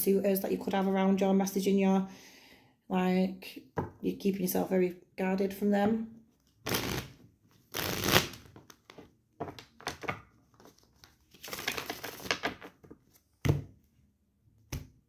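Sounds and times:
cards shuffled by hand: 6.6 - 7.1, 7.7 - 13.2.

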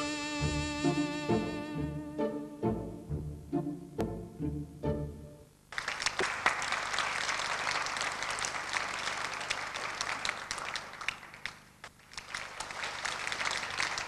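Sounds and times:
string music: 0.0 - 5.5
audience applause: 5.7 - 14.0.

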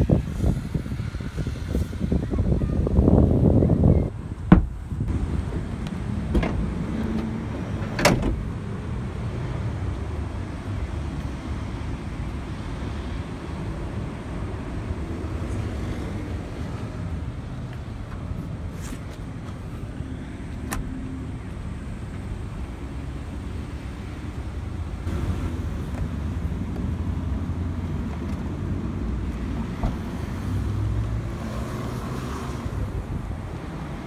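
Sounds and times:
steady low rumble: 0.9 - 11.2
clicks and knocks of car fittings: 4.5 - 4.9.

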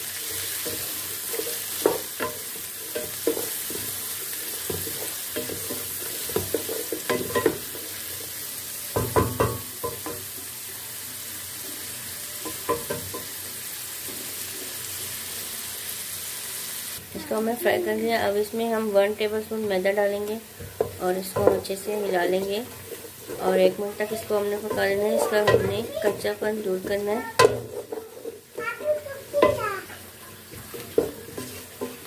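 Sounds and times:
vegetables sizzling in oil: 0.0 - 32.0
wooden spoon scraping a pan: 0.2 - 8.1, 18.4 - 32.0.

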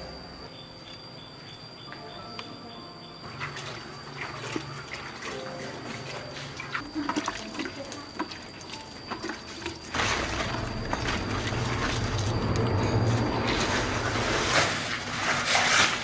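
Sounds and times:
water rushing: 9.9 - 15.4.

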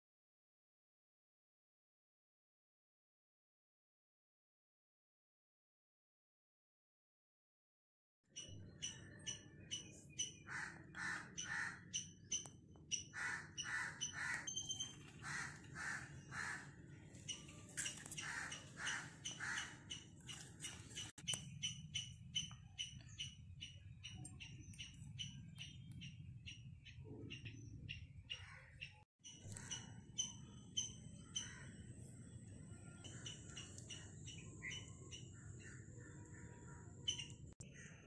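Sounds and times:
small birds chirping: 8.3 - 38.0
crows cawing: 10.4 - 12.1, 13.1 - 14.5, 15.1 - 16.8, 18.1 - 20.0, 31.2 - 31.8.

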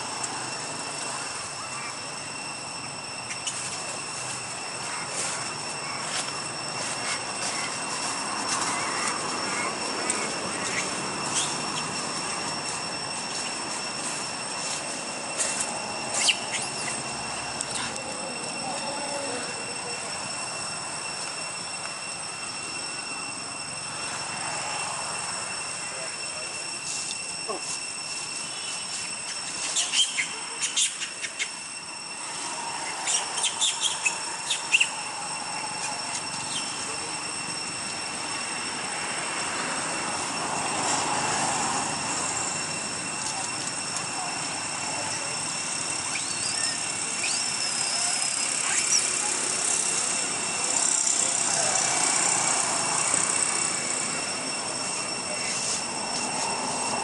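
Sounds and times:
insects buzzing drone: 0.0 - 57.0.

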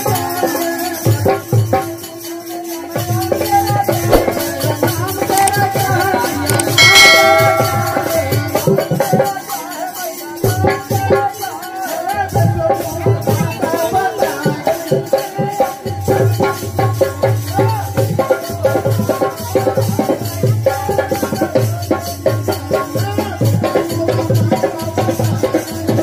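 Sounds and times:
jingling percussion: 0.0 - 26.0
hand drum: 4.0 - 4.7, 6.7 - 9.0
bright ringing tone: 6.8 - 8.8.

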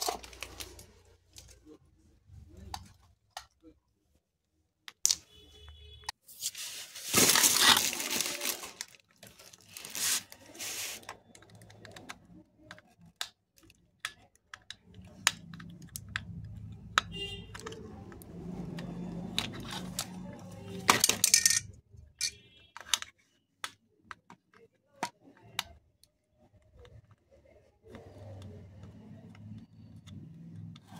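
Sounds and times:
plastic packaging crinkling: 6.4 - 11.0.

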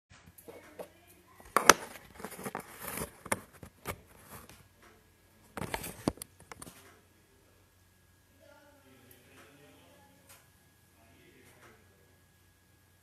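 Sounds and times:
phone handling clicks and rustling: 1.5 - 4.6, 5.5 - 6.9.

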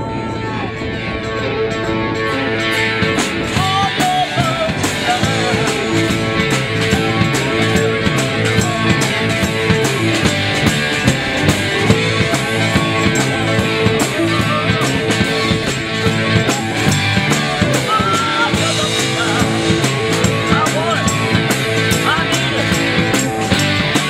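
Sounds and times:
rock band playing live: 0.0 - 24.0
drum kit steady beat: 2.6 - 24.0.

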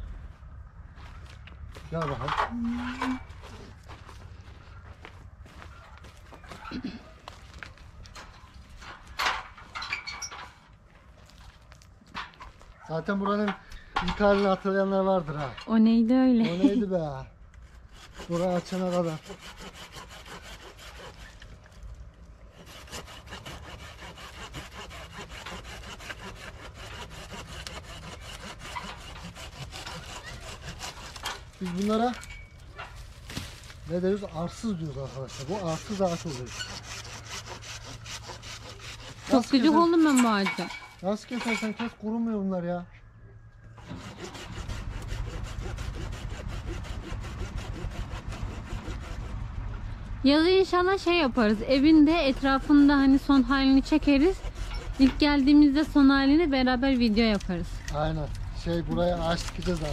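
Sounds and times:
hand saw cutting branch: 17.6 - 21.8, 22.5 - 42.0, 43.8 - 49.4, 50.3 - 59.9.

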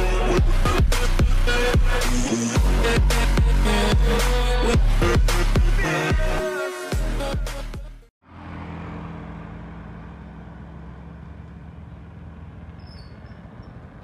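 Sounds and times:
electronic music: 0.0 - 8.0.

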